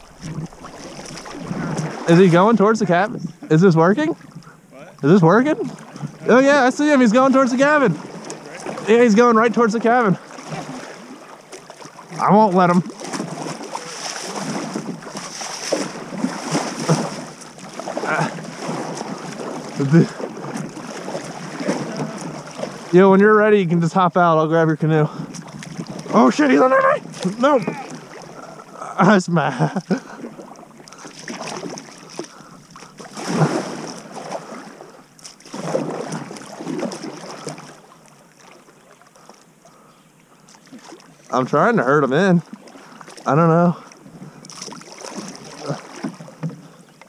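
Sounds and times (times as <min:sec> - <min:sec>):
wind on microphone: 0:00.0 - 0:02.1
paddle strokes splashing: 0:00.0 - 0:23.9, 0:25.1 - 0:28.8, 0:29.8 - 0:47.0
moving water: 0:00.0 - 0:47.0.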